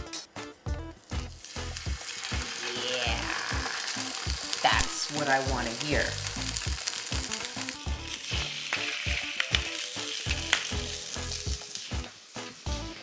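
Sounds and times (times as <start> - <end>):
oil popping: 1.0 - 12.2
fish sizzling in a skillet: 1.0 - 13.0.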